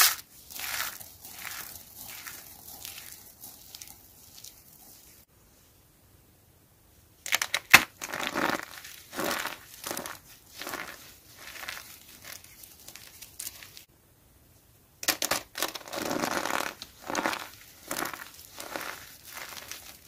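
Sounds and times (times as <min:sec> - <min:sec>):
soap chips crunching: 0:00.0 - 0:05.1, 0:07.9 - 0:13.8, 0:15.4 - 0:20.0.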